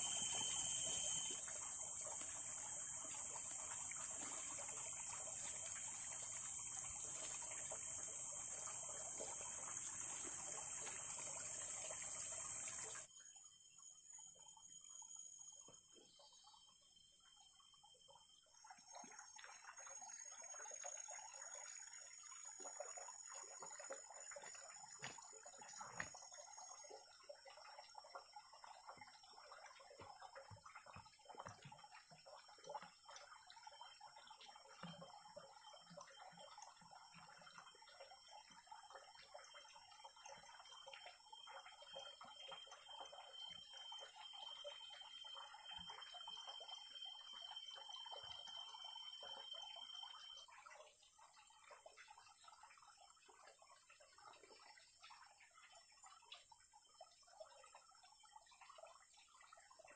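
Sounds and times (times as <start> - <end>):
insects buzzing high tones: 0.0 - 15.2, 41.4 - 50.6.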